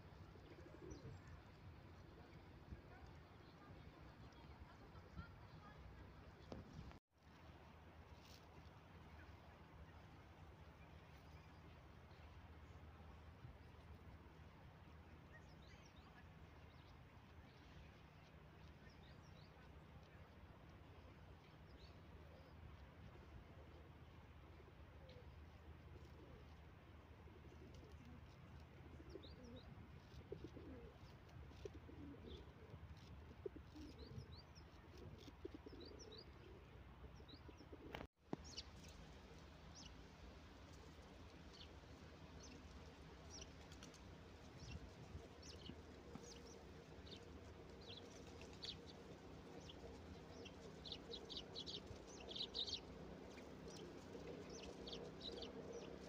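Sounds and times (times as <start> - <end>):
small birds chirping: 27.4 - 56.0.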